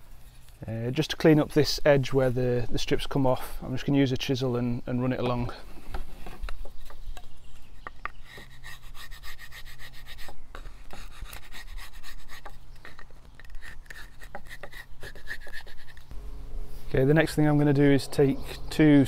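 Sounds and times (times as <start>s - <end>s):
chisel scraping wood: 7.8s - 16.7s.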